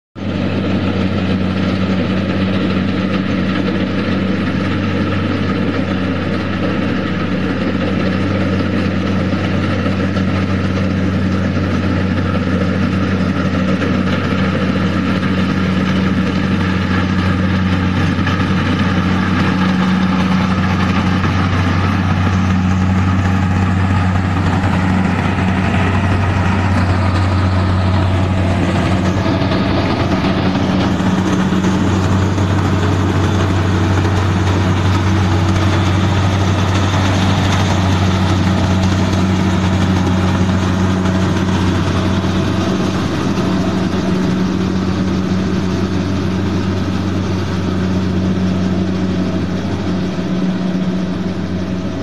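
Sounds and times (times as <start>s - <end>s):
combine harvester diesel engine: 0.2s - 52.0s.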